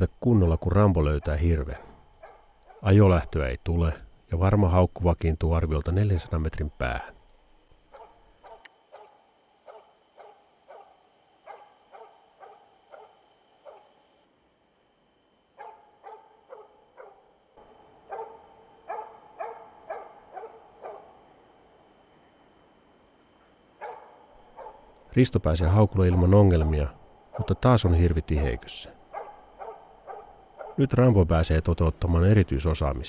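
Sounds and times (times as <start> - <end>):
distant dog barking: 1.0 - 2.9, 7.8 - 14.1, 15.6 - 17.4, 18.0 - 21.3, 23.8 - 25.0, 26.9 - 31.0.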